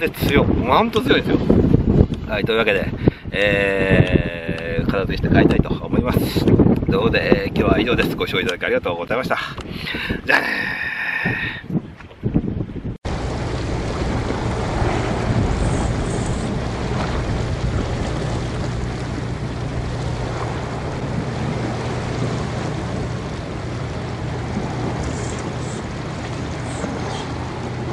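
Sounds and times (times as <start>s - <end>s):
wind buffeting microphone: 0.0s - 27.9s
low drone: 13.1s - 27.9s.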